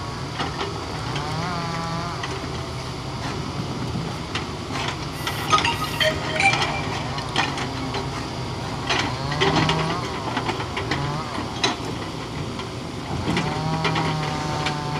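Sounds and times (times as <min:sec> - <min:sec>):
excavator diesel engine under load: 0:08.0 - 0:14.9.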